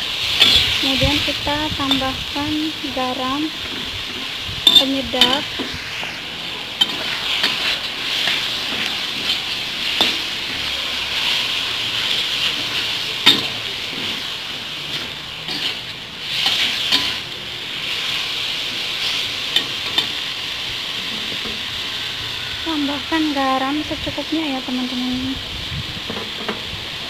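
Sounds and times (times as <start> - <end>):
food sizzling in a wok: 0.0 - 27.0
spatula stirring and scraping: 3.5 - 17.3.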